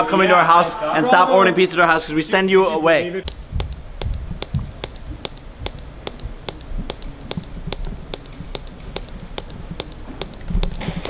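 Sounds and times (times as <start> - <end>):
water dripping into metal bowl: 3.3 - 11.0.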